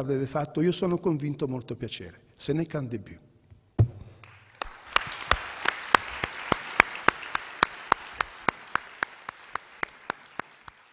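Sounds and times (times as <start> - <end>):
audience applause: 4.2 - 10.9
hands clapping close to microphone: 4.2 - 10.9.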